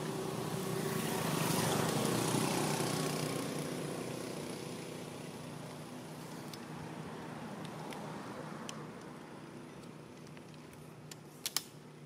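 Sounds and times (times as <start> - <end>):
passing motor engine: 0.0 - 5.6.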